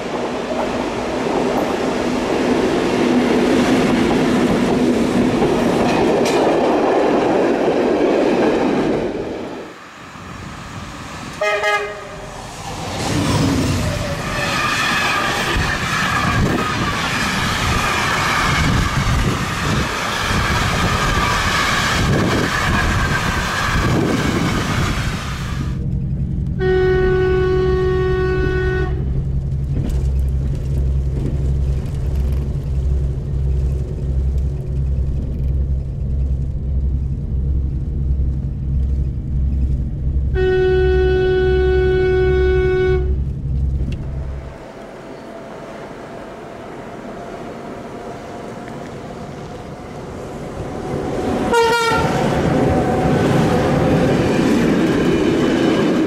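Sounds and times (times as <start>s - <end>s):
train rumbling past: 0.0s - 56.0s
train horn blasts: 11.4s - 12.3s, 26.6s - 29.1s, 40.3s - 43.2s, 51.4s - 53.1s
low throbbing hum: 25.7s - 44.6s.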